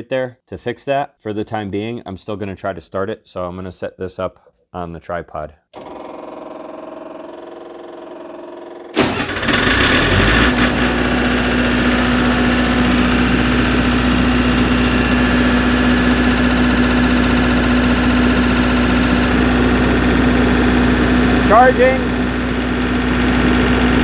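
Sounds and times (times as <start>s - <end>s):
diesel generator running: 5.8s - 24.0s
steady hum: 10.4s - 24.0s.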